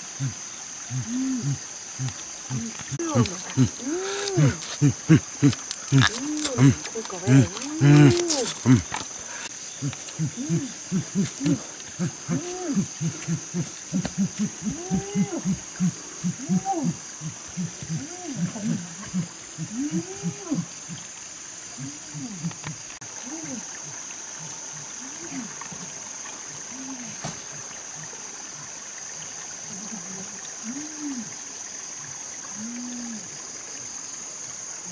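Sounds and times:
short low calls: 0.0s - 21.1s
high-pitched insect drone: 0.0s - 27.4s
stream running: 0.0s - 34.9s.

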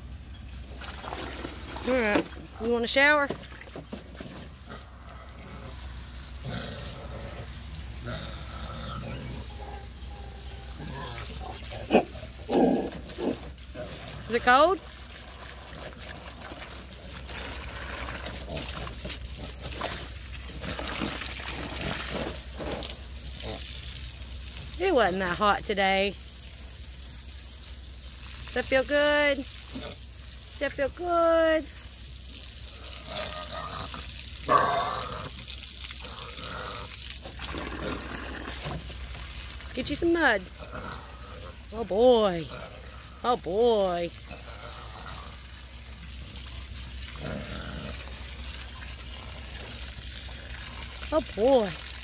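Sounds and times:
hose water splashing on mud: 0.0s - 52.0s
pig grunting: 4.1s - 23.8s, 32.6s - 38.9s, 40.4s - 41.7s, 42.3s - 43.5s, 44.1s - 45.6s, 47.1s - 48.4s.

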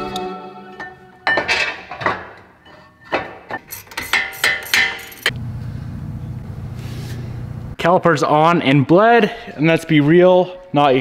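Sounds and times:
steady low hum: 5.3s - 7.8s.

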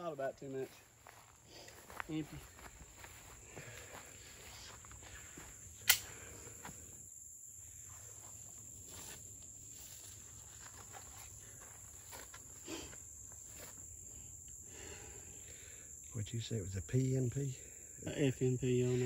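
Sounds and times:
high insect chorus: 0.0s - 19.0s
footsteps in grass: 0.4s - 5.8s, 7.9s - 13.9s
sharp click: 5.8s - 6.1s.

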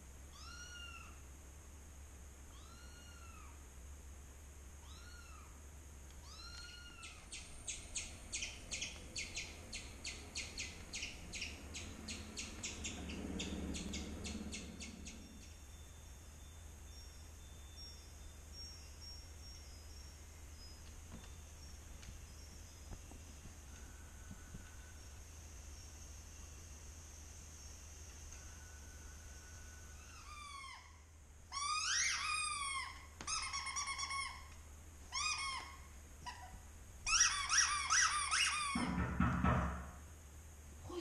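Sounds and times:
steady low hum: 0.0s - 37.9s
kitten meowing: 0.3s - 1.2s, 2.5s - 3.6s, 4.8s - 5.6s, 6.2s - 7.3s
faint high chirps: 4.8s - 38.8s
squirrel chirping: 6.2s - 38.8s.

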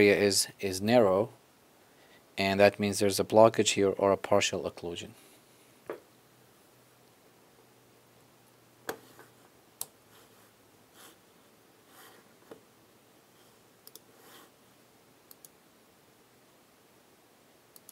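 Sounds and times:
computer mouse clicks: 13.8s - 14.1s, 15.3s - 15.6s.

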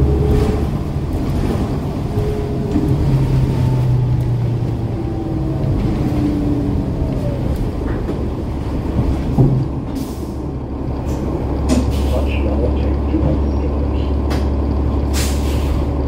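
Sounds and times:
diesel bus engine running: 0.0s - 16.0s.

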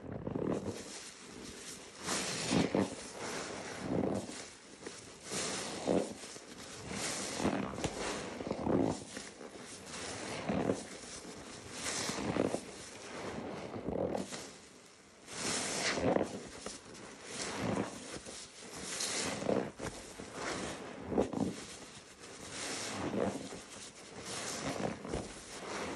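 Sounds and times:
soapy sponge squelching: 0.4s - 14.6s, 15.3s - 25.9s.

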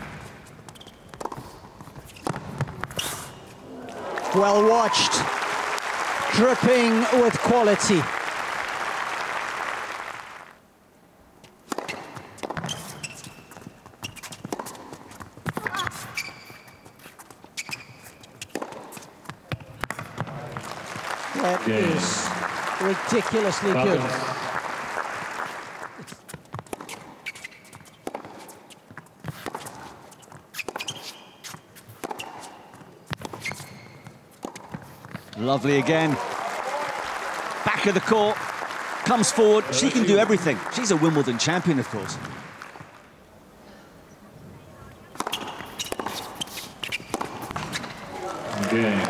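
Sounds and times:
tennis ball bouncing on court: 0.0s - 3.1s, 11.6s - 16.6s, 17.6s - 20.8s, 25.9s - 35.3s, 45.1s - 49.0s
crowd applause: 3.8s - 10.6s, 20.4s - 26.1s, 35.6s - 43.0s, 48.1s - 49.0s.

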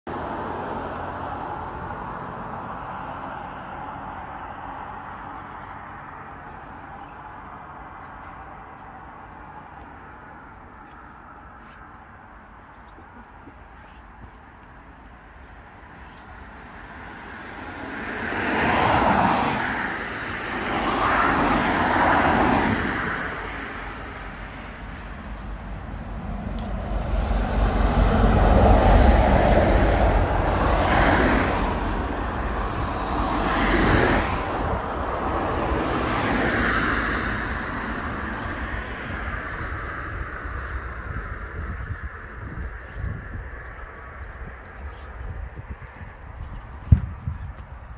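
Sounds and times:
vehicles passing: 0.1s - 47.9s
lorry passing: 16.4s - 45.2s.

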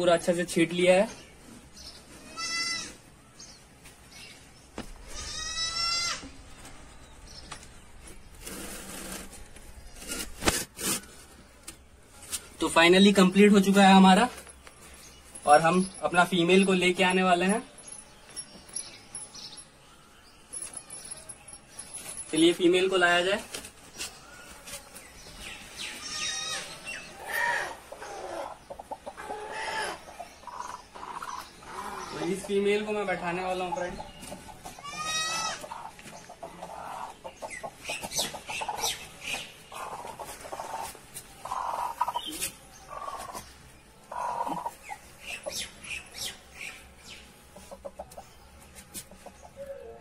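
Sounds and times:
farm animal call: 2.1s - 3.0s, 5.0s - 6.4s, 25.9s - 28.6s, 29.2s - 32.4s, 34.8s - 36.0s, 39.8s - 43.4s, 44.1s - 45.6s
handling rustle: 20.5s - 26.2s
hen calling: 34.7s - 39.0s, 39.7s - 43.4s, 44.1s - 46.3s.

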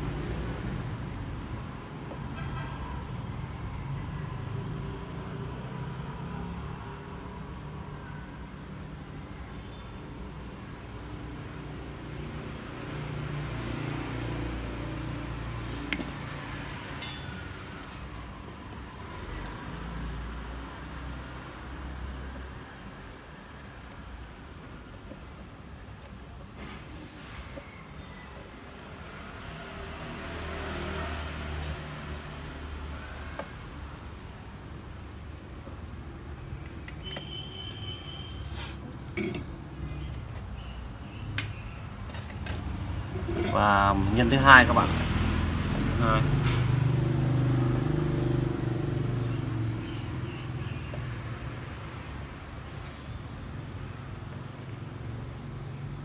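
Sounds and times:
metallic clinks of soldering iron: 17.0s - 17.5s.

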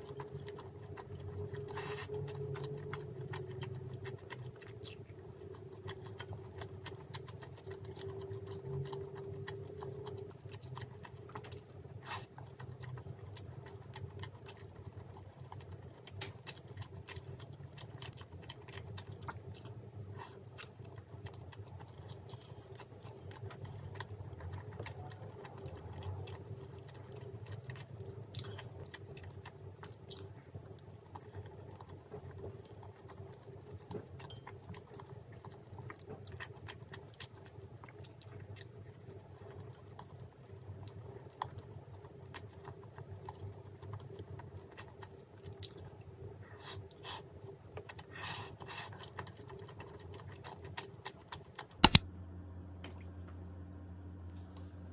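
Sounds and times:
close chewing: 0.0s - 52.0s
low hum: 51.8s - 54.9s.

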